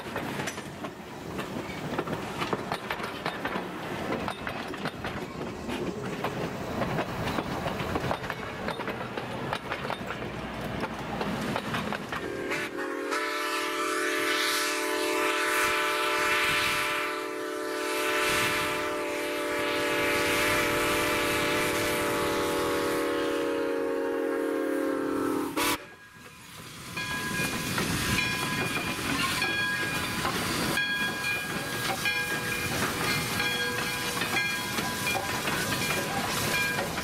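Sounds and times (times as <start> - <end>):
train wheels clattering: 0.0 - 13.3, 25.8 - 37.0
steam whistle blast: 12.2 - 26.2.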